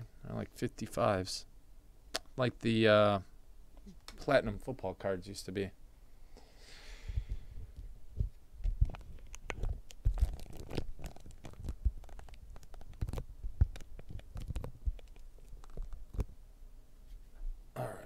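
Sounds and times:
low thumps and knocks: 7.1 - 10.4
cards rustling: 8.8 - 16.3.

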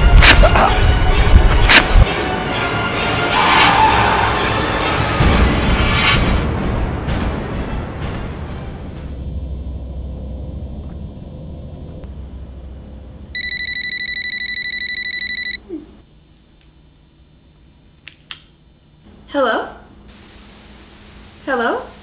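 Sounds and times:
low rumble: 5.6 - 13.3
mobile phone ringing: 13.4 - 15.6.

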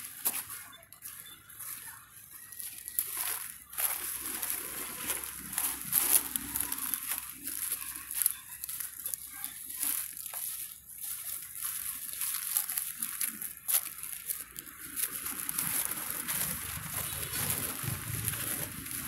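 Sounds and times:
dry leaves rustling and crackling: 0.0 - 19.0.

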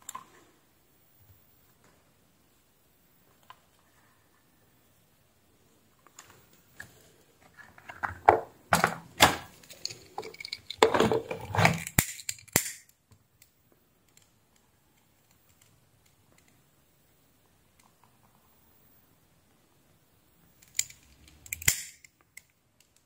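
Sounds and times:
small tools and parts clattering: 6.8 - 12.9.

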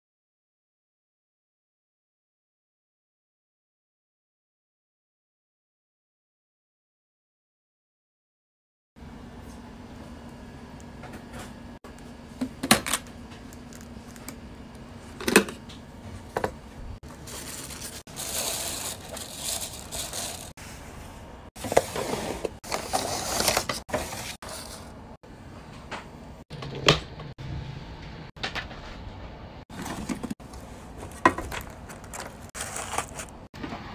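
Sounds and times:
paper rustling: 17.0 - 20.6, 21.6 - 24.9, 29.7 - 33.5.

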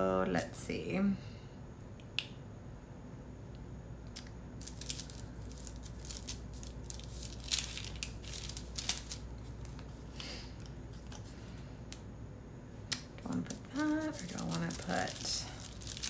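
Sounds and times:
paper rustling and crinkling: 4.6 - 10.2, 13.3 - 16.0.

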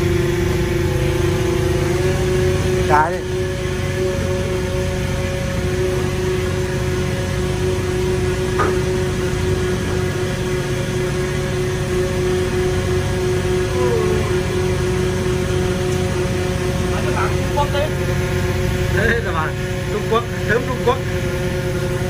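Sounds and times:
machinery droning: 0.0 - 22.0.

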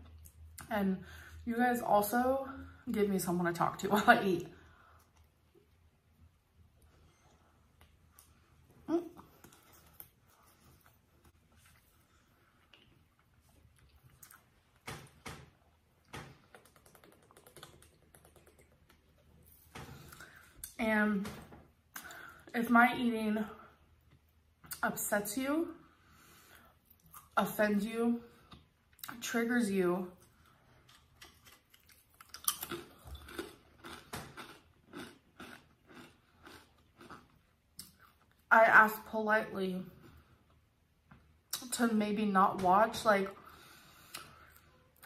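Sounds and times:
person chewing crisp cracker: 30.8 - 38.4.

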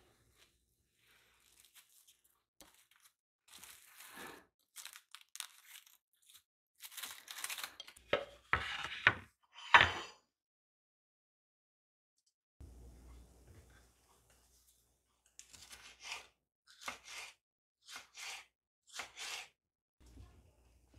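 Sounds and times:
cling film crinkling: 1.3 - 8.0.

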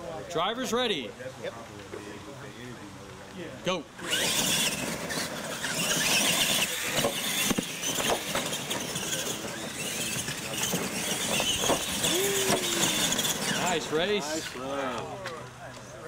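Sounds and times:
toy truck motors whining: 4.0 - 15.0
trucks knocking over ramps: 4.1 - 14.1.

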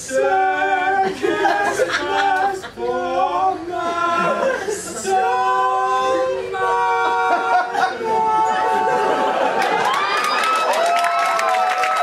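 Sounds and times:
men singing unaccompanied: 0.0 - 9.4.

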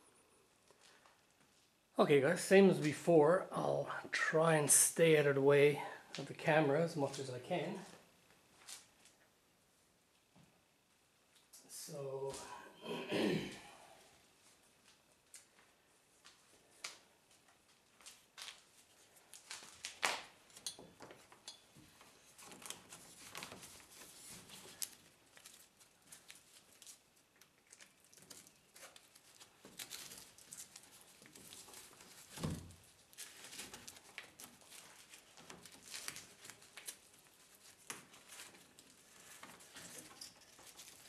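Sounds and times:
strap rustling: 14.4 - 41.0.

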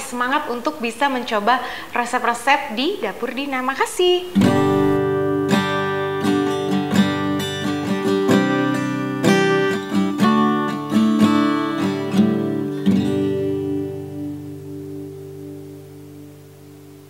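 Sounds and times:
acoustic guitar picking and strumming: 4.2 - 17.0.

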